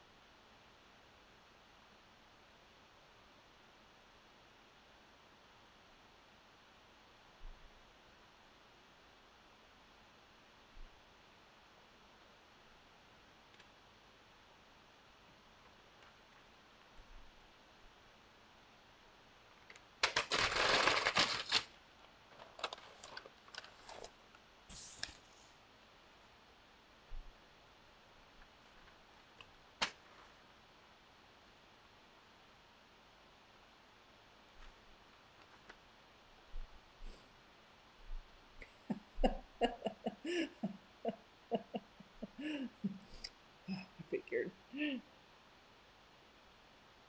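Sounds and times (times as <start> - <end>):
paper rustling: 20.0 - 25.5
woman laughing: 38.6 - 45.0.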